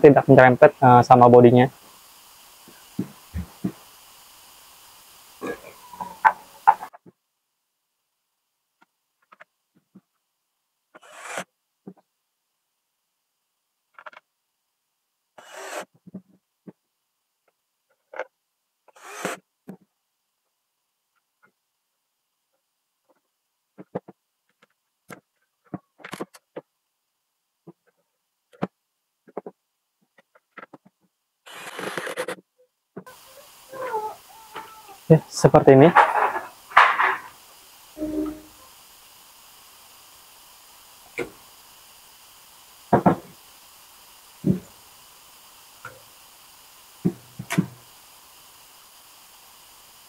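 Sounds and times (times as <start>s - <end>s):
screwdriver scraping plastic: 31.5s - 32.4s.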